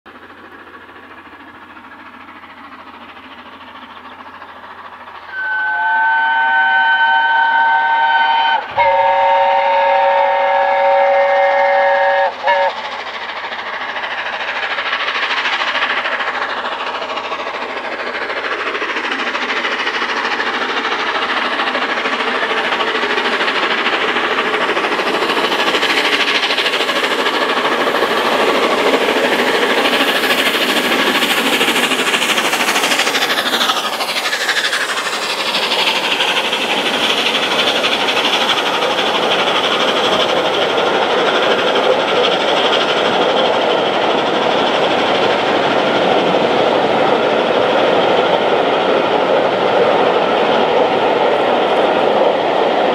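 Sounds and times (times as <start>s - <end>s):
train passing: 0.1s - 52.9s
steam locomotive chime whistle: 5.2s - 12.8s.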